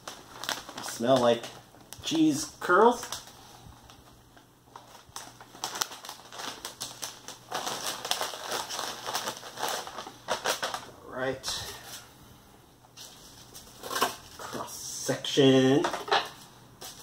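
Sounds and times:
snack bag crinkling: 0.0s - 10.9s.

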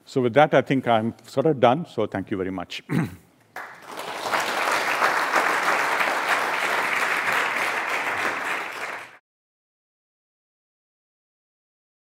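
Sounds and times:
audience applauding: 3.6s - 9.2s.

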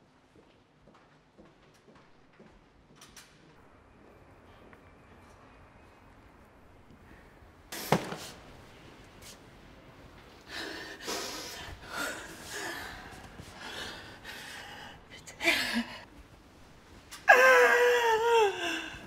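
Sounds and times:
woman sobbing: 15.2s - 16.1s, 17.2s - 19.0s.

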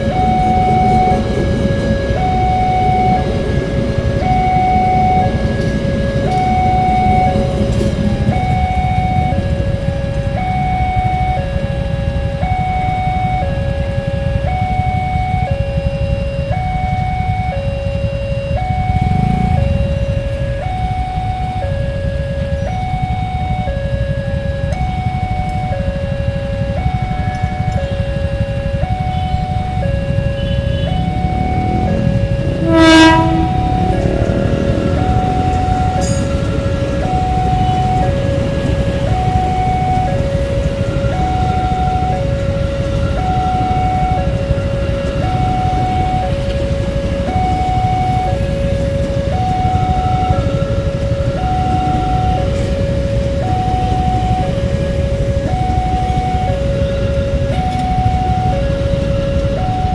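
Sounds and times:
two-tone crossing alarm: 0.0s - 59.9s
low rumble: 26.2s - 59.8s
train horn blast: 30.3s - 34.9s.

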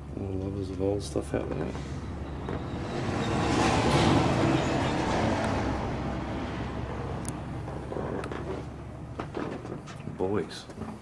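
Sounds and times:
road vehicle passing: 1.3s - 9.2s.

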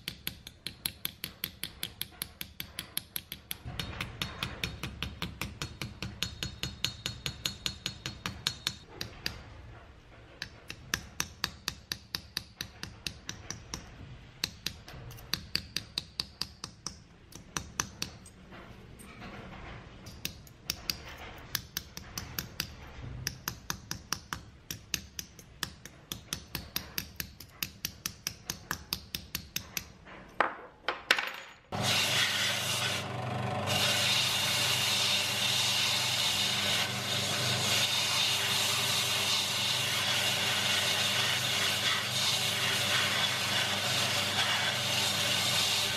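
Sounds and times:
hammer tapping metal punch: 0.0s - 9.4s
bench grinder running: 31.8s - 45.9s.

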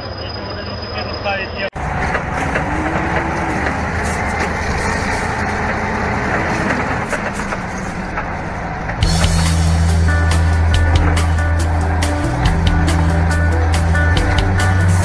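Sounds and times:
lorry and tractor engines rumbling: 0.0s - 15.0s
music: 9.0s - 15.0s.

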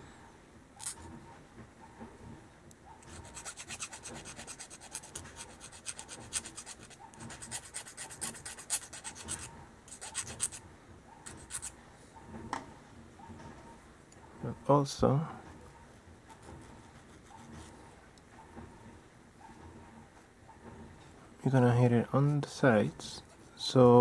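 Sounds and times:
file scraping aluminum: 3.0s - 10.6s, 11.2s - 11.8s.

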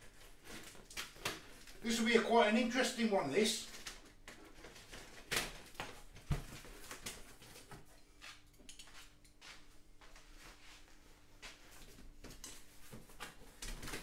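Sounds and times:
cardboard rustling and scraping: 0.0s - 1.8s.

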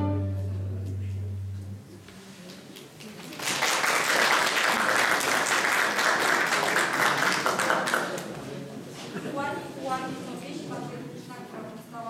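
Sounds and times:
low bowed string note: 0.0s - 2.0s
audience applause: 3.0s - 8.3s.

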